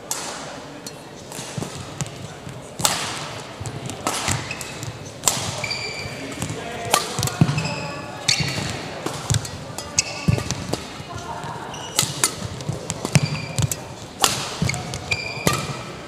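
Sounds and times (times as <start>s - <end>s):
rackets hitting shuttlecock: 0.0s - 16.0s
shoes squeaking on court floor: 0.7s - 16.0s.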